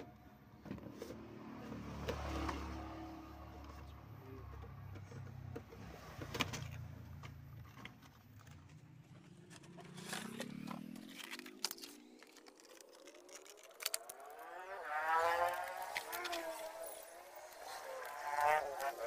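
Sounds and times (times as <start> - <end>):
packaging rustling and clicking: 5.0 - 14.7, 15.4 - 19.0.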